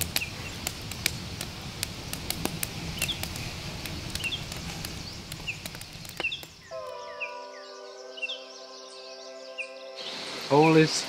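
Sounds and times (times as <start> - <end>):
campfire crackling and popping: 0.0 - 7.0
bird chirping: 4.1 - 11.0.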